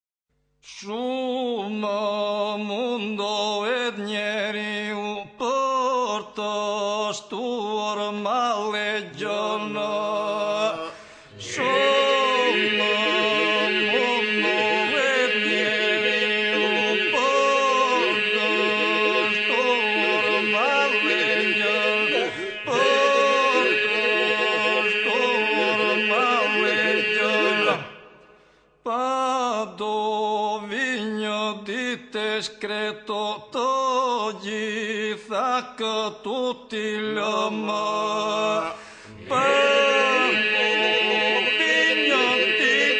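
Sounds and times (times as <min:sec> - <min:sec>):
voice chanting a hymn: 0:00.7 - 0:28.3, 0:28.9 - 0:42.9
held vocal drone: 0:09.1 - 0:28.3, 0:38.6 - 0:42.9.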